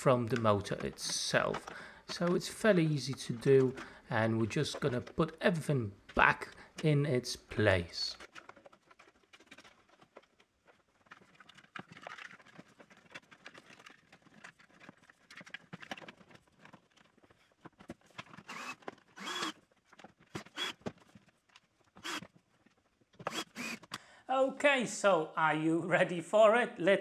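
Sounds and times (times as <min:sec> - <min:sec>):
clicks and taps of plastic parts: 0:00.0 - 0:07.0.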